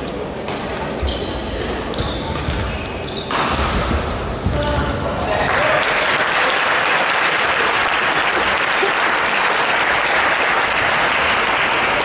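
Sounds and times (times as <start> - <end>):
spectators applauding: 5.3 - 12.0.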